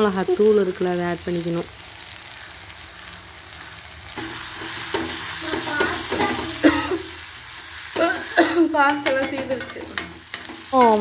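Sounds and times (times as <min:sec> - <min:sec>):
sauce sizzling in oil: 0:00.0 - 0:11.0
spoon scraping pan: 0:04.2 - 0:11.0.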